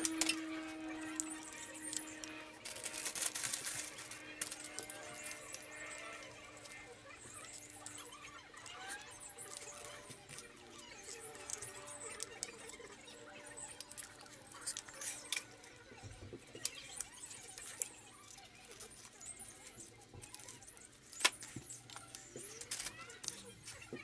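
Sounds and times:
plastic connectors clicking: 0:00.0 - 0:00.4.

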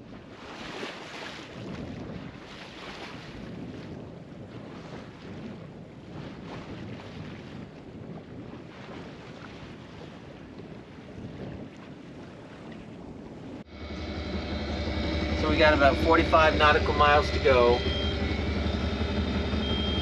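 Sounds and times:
water splashing along boat hull: 0:00.0 - 0:13.7
wind buffeting microphone: 0:00.0 - 0:20.0.

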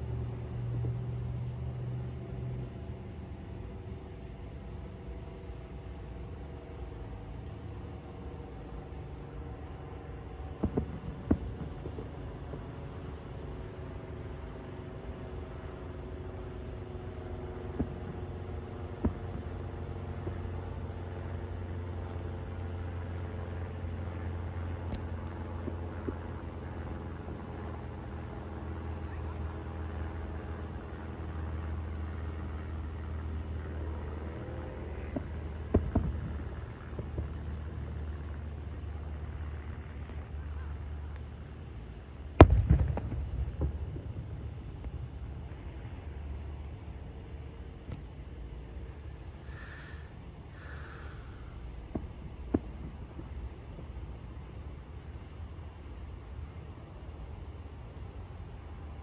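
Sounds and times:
sharp bangs: 0:42.4 - 0:44.4.

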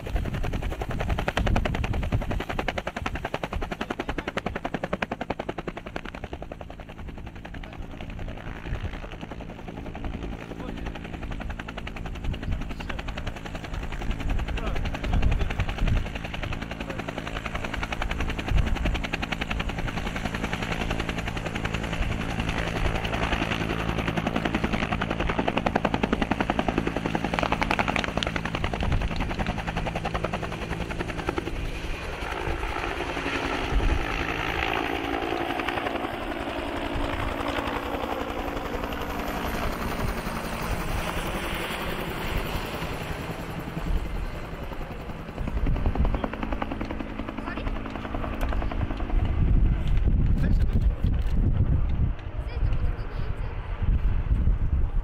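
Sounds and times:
helicopter drone: 0:00.0 - 0:55.0.

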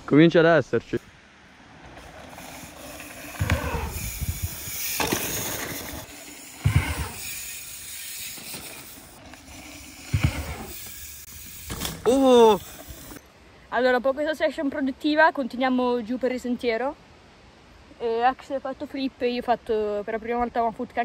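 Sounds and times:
bike tyres rolling over dirt: 0:01.6 - 0:13.2
dull thuds: 0:10.1 - 0:10.7.

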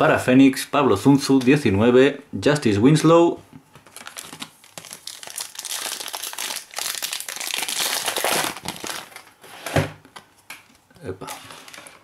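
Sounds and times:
wrapper crinkling: 0:03.8 - 0:09.4.

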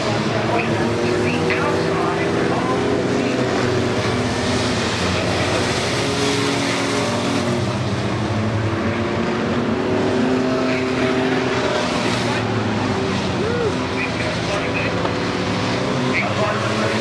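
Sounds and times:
racing truck engines: 0:00.0 - 0:17.0.

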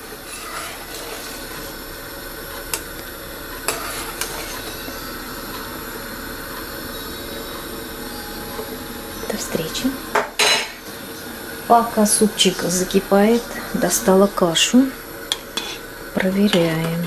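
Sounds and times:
steady hiss of heating pot: 0:00.0 - 0:17.0
metal spoon stirring soup: 0:03.6 - 0:04.8, 0:15.3 - 0:15.8.

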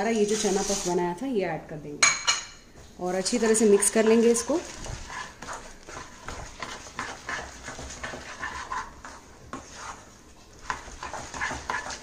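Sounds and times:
spatula scraping sticky pan: 0:00.0 - 0:01.1, 0:03.1 - 0:12.0.

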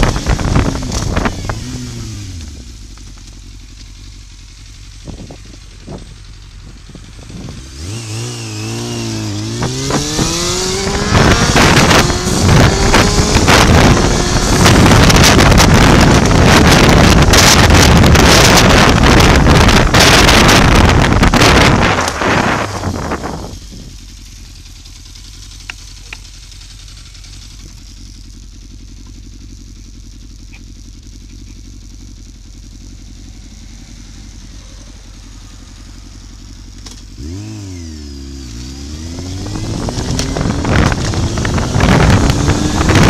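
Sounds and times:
wind noise on microphone: 0:00.0 - 0:02.7, 0:05.0 - 0:24.1, 0:39.0 - 0:43.0
motorcycle engine: 0:00.0 - 0:43.0.

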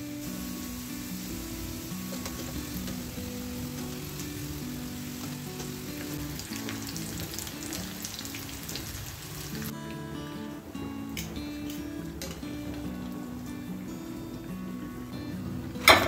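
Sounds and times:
hot oil sizzling and crackling: 0:00.0 - 0:09.8
background music with low notes: 0:00.0 - 0:16.0.

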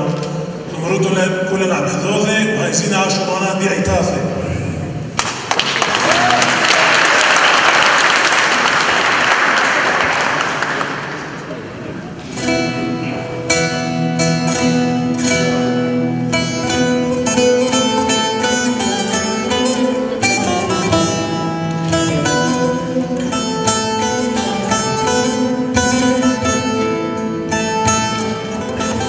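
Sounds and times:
lute plucked notes: 0:11.2 - 0:29.0.

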